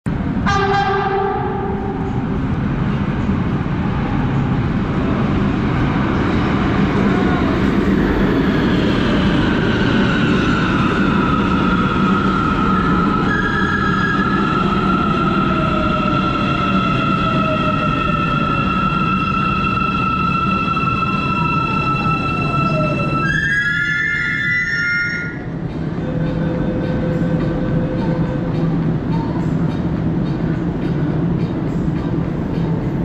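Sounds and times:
rumble of wheels on rail: 0.0s - 33.0s
train horn blast: 0.4s - 2.0s.

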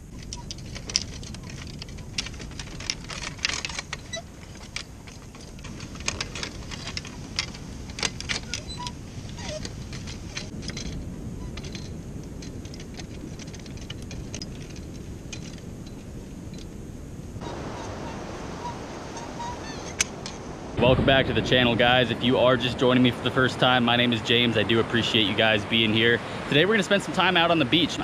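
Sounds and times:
fishing cart clinking and rattling: 0.0s - 16.8s, 17.4s - 21.0s
wind: 0.0s - 28.0s
surf: 17.4s - 28.0s.

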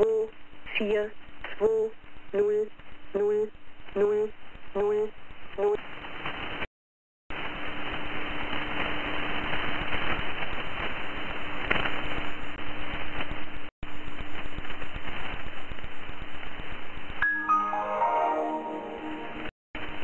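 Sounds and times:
radio static hiss: 1.0s - 6.7s, 7.4s - 16.9s.

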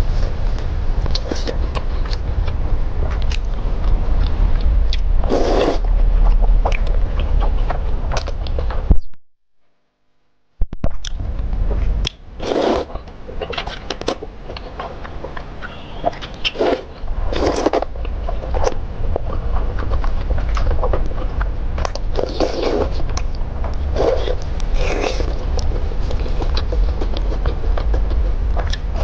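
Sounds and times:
low hum: 0.0s - 29.0s
mouth smacks and clicks: 1.0s - 9.1s, 10.8s - 11.2s, 12.0s - 29.0s
wet noodle slurps: 5.2s - 5.9s, 12.4s - 14.2s, 15.7s - 17.9s, 22.1s - 23.0s, 23.9s - 27.8s.

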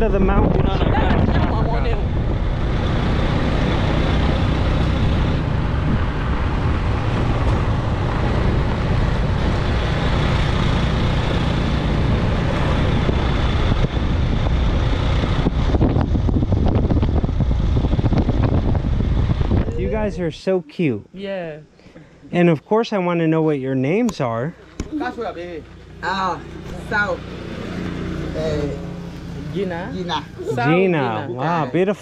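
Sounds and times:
vehicle road and engine noise: 0.0s - 32.0s.

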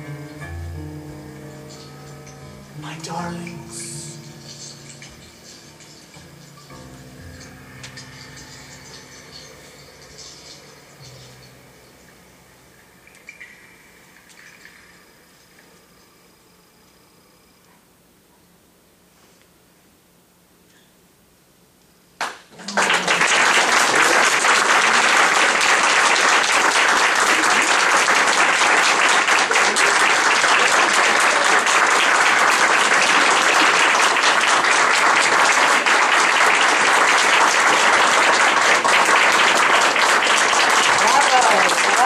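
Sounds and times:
audience applauding: 2.8s - 5.7s, 22.2s - 42.0s.

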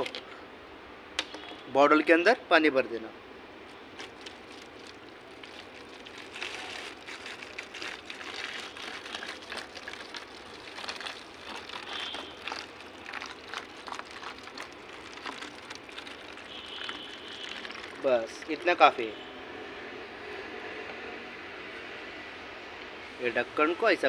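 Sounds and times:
water pouring into plastic bottle: 3.9s - 18.9s.

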